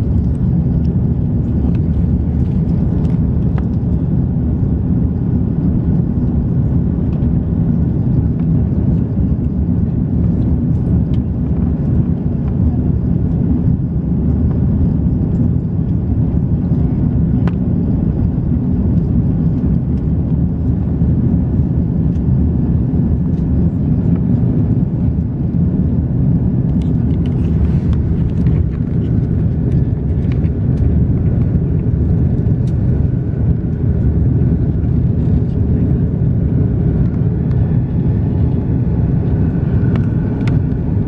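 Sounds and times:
airliner engines rumbling: 0.0 - 41.0.

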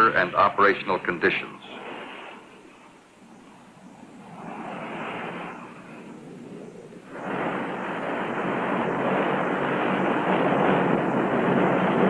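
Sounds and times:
turboprop aircraft in flight: 3.6 - 12.0.

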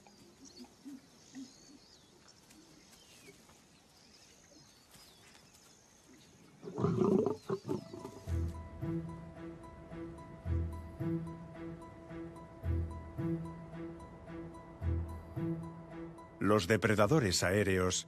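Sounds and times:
lion snarling growl: 6.6 - 8.2.

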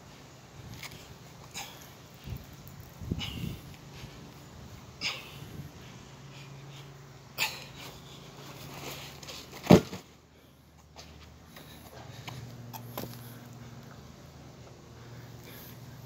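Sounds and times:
hard breathing: 0.8 - 9.3, 11.4 - 14.1, 14.8 - 16.0
rucksack thudding on concrete: 9.6 - 10.1.

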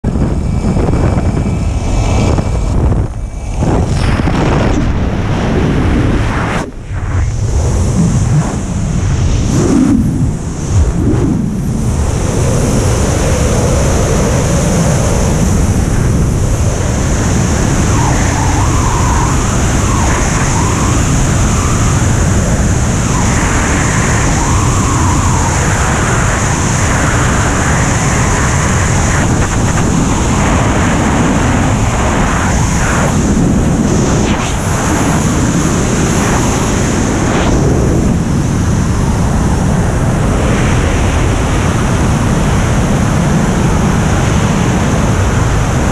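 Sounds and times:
wind rushing over microphone: 0.0 - 45.9.

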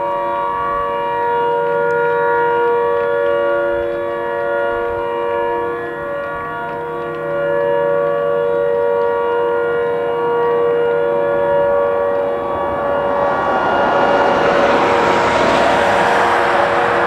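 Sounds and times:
siren long steady tone: 0.0 - 17.0
passing car road noise: 10.0 - 17.0.

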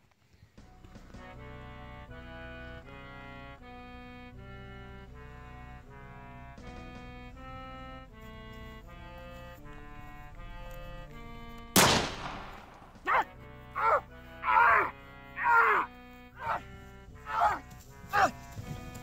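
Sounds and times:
background music: 0.2 - 19.0
pistol shot: 11.8 - 13.0
short falling cries: 13.0 - 16.6, 17.2 - 18.4.

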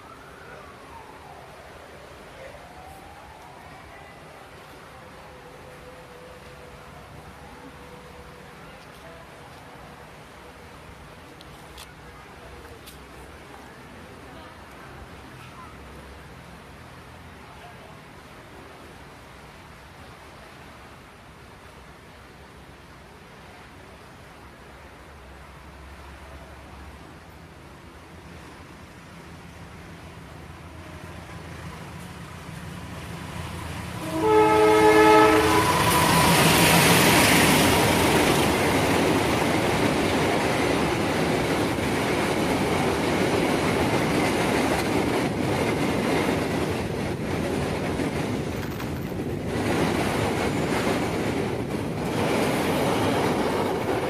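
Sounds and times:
train rumble: 0.0 - 54.0
locomotive horn blast: 34.0 - 36.6.

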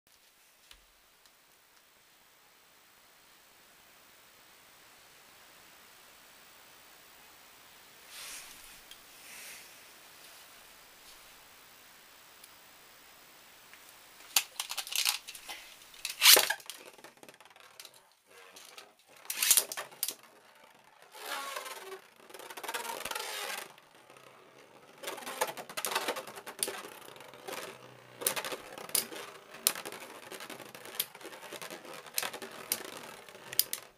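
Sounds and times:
spinning tops clacking: 14.3 - 33.9
spinning tops whirring and scraping: 14.3 - 33.9.

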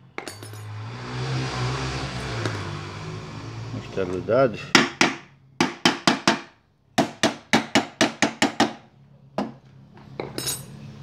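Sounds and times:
metallic jingle: 0.2 - 0.7, 10.4 - 10.8
hammer striking metal: 4.7 - 8.8.

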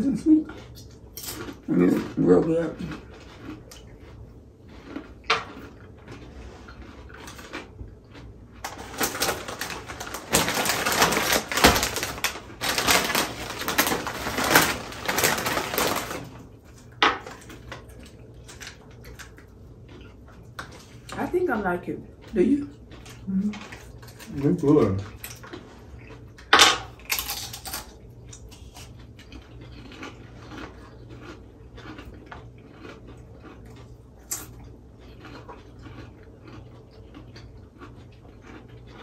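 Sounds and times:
dense crackling crunching: 8.6 - 17.7
chewing clicks: 25.0 - 39.0.

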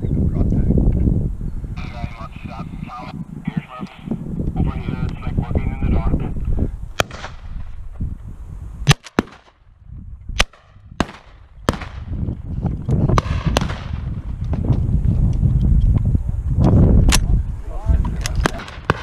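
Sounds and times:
shotgun shots: 7.0 - 7.5, 8.8 - 9.6, 10.4 - 12.1, 13.2 - 14.0, 18.4 - 19.0.

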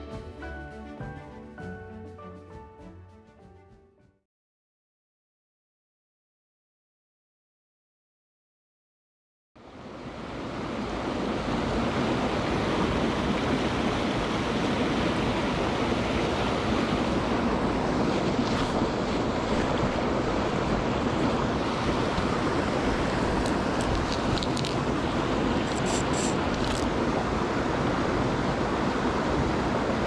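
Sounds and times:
stream rushing over rocks: 9.8 - 30.0.

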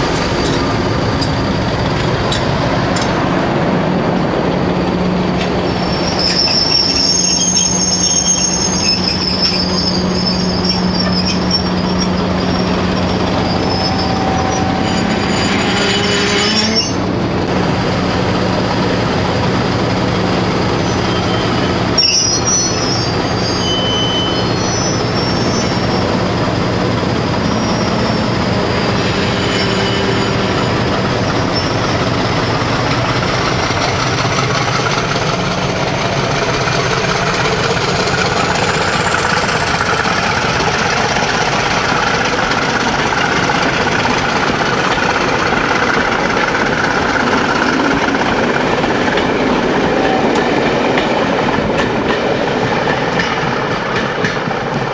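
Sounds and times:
high wheel squeal: 0.0 - 3.0, 4.0 - 17.2, 20.8 - 26.4, 27.2 - 32.7, 38.1 - 48.9
diesel locomotive engine running: 0.0 - 54.9
train wheels on track: 0.0 - 54.9.

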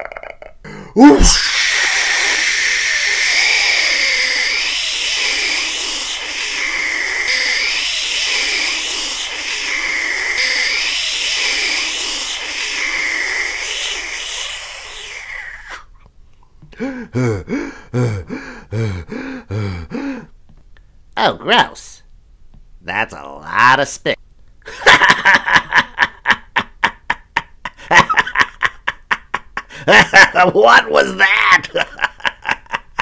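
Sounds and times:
cartoon voice panting: 0.6 - 15.8
cartoon wind blowing with whistle: 1.0 - 15.9.

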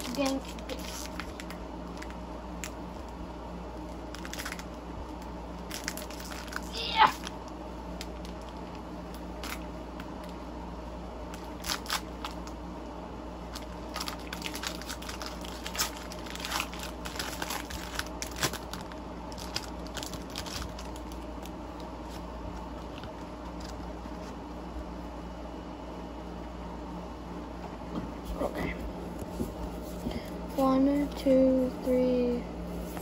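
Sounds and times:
foil wrapper crinkling: 0.0 - 3.2, 3.8 - 10.3, 11.3 - 12.6, 13.5 - 24.3
faint room hum: 0.0 - 33.0.

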